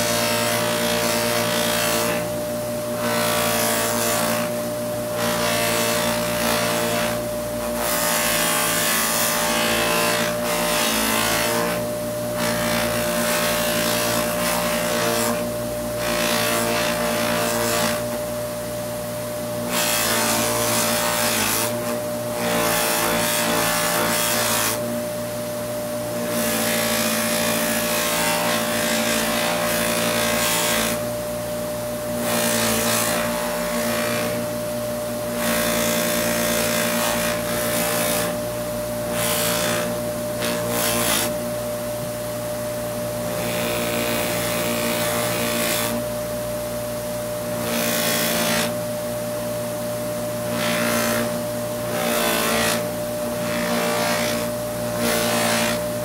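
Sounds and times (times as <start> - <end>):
bench buffer motor humming: 50.1 - 56.0.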